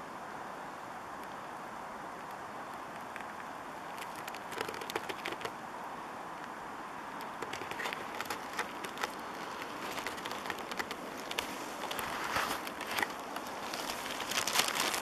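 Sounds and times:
twigs crackling underfoot: 2.2 - 5.6, 6.4 - 15.0.

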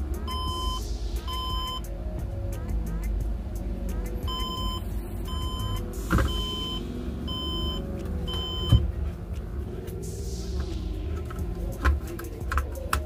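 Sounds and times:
high-pitched computer beeps: 0.3 - 1.8, 4.3 - 8.8.

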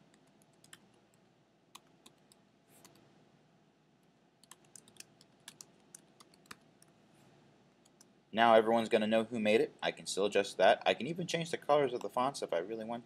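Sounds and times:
typing on computer keyboard: 4.4 - 6.9.

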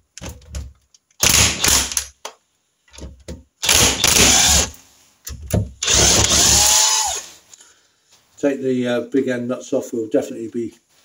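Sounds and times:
impact driver hammering nut: 3.6 - 4.7, 5.8 - 7.0.

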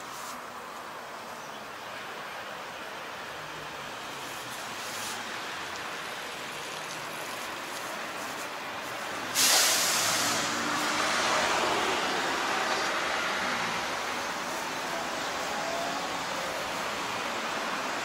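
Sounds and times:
road traffic: 0.0 - 18.0
passing vehicle rumble: 3.1 - 18.0
sudden loud hiss: 9.2 - 13.5.

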